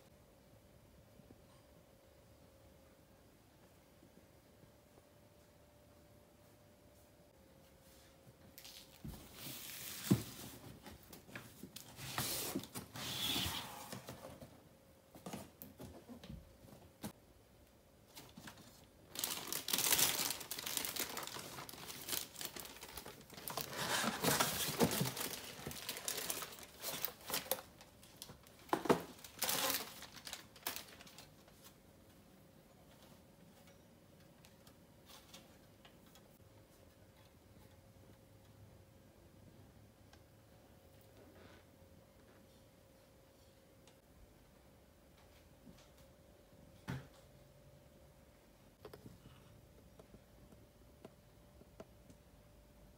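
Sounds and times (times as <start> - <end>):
plastic wrapping crinkling: 18.1 - 31.8
cardboard box being opened: 23.4 - 27.4.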